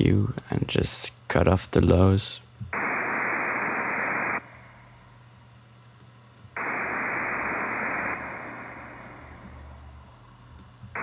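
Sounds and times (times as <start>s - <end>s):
synthesized noise hiss notes: 2.7s - 4.5s, 6.6s - 10.3s.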